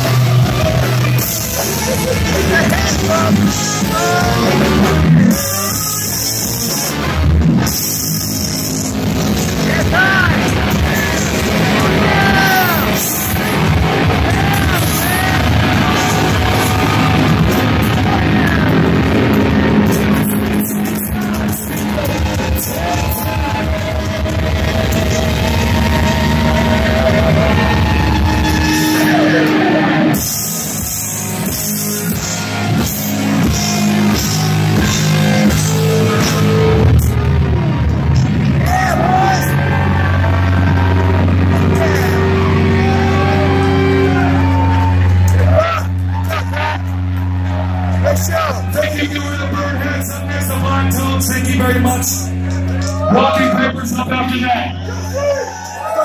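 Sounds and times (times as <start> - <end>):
distorted electric guitars: 0.0 - 56.0
drums: 0.0 - 56.0
person singing: 1.2 - 6.4.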